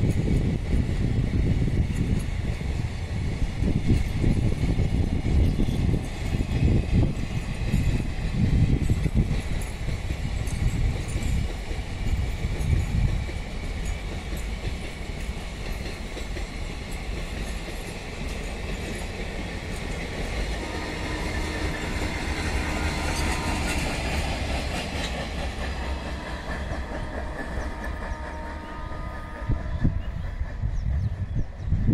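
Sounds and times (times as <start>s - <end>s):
wheels clicking over rail joints: 0.0s - 29.5s
train wagons rumbling past: 0.0s - 31.9s.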